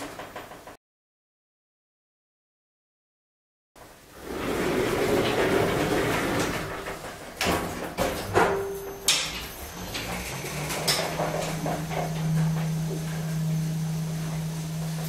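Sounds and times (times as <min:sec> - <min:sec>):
lift doors sliding shut: 0:03.8 - 0:15.0
steady low hum: 0:08.6 - 0:15.0.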